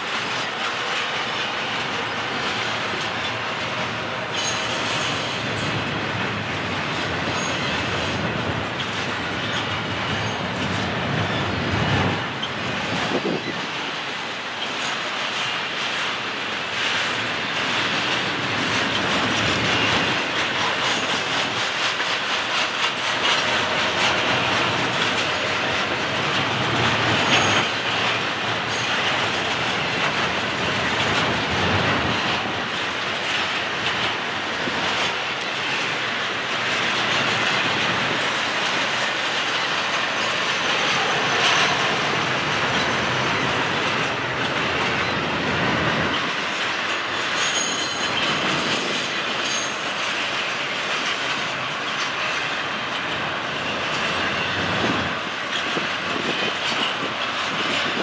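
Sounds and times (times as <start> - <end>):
train wheels rolling on rails: 0.0 - 58.0
high wheel squeal: 4.3 - 5.9, 27.2 - 28.0, 46.9 - 51.1.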